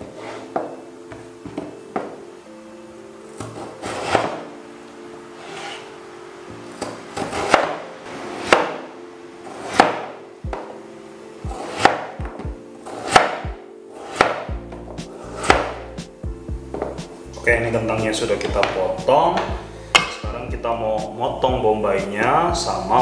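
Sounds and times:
knife slicing potato: 3.5 - 4.4, 7.2 - 7.8, 11.6 - 12.1, 12.9 - 14.5, 15.3 - 15.8.

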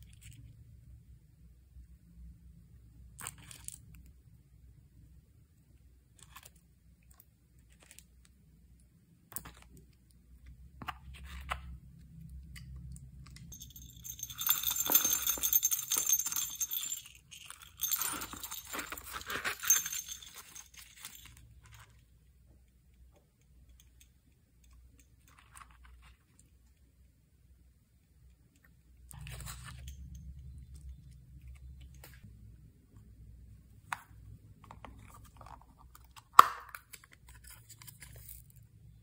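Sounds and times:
small hard pieces clinking and rattling: 13.4 - 21.5.

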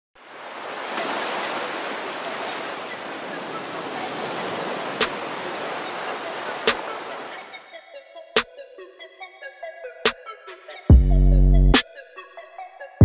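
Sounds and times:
sea waves breaking: 0.2 - 7.7.

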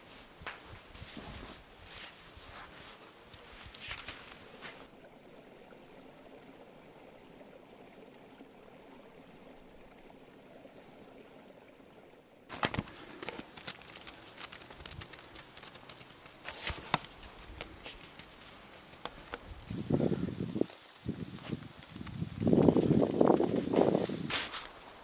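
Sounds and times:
footsteps crunching through snow: 0.0 - 4.9, 12.5 - 19.8, 20.6 - 25.0
creek trickling: 1.6 - 25.0.

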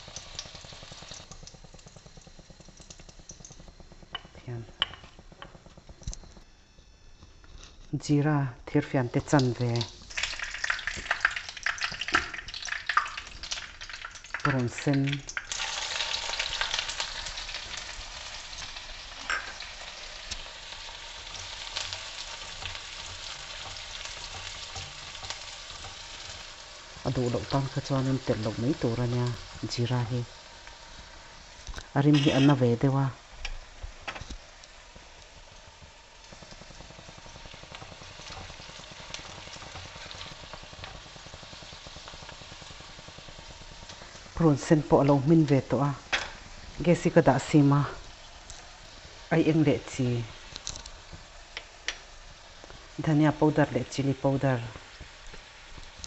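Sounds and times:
spoon stirring onion: 0.0 - 6.4, 15.3 - 47.0
onion sizzling in hot oil: 0.0 - 56.0
spatula scraping and tapping pan: 1.2 - 6.4, 19.2 - 19.7, 21.3 - 26.6, 31.6 - 32.6, 35.8 - 42.4.

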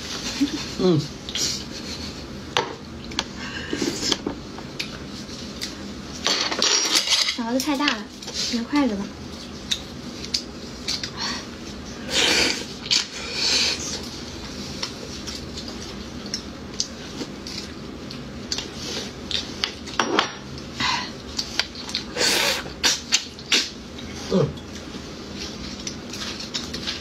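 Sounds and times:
wet eating noises: 9.3 - 27.0.

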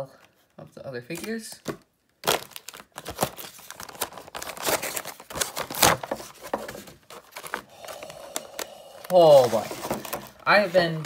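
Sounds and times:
plastic packaging crinkling: 2.2 - 11.0.

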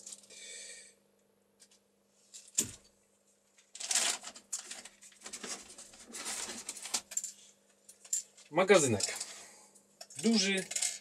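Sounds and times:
packaging rustling and clattering: 3.6 - 7.4.

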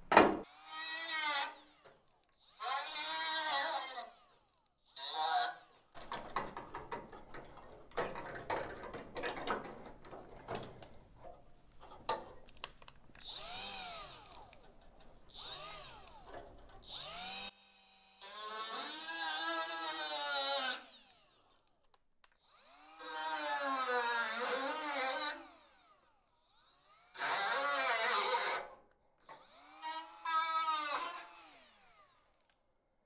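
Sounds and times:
cordless drill drilling into steel: 0.4 - 5.8, 13.2 - 14.7, 15.3 - 21.7, 22.4 - 28.6, 29.3 - 32.5
drill bit rattling and clicking: 12.1 - 17.5.

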